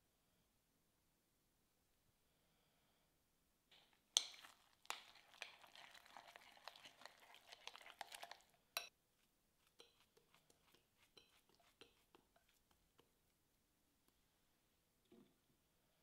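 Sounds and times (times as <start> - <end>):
spoon stirring in glass bowl: 3.7 - 13.3
spoon clinking against glass: 11.1 - 12.0.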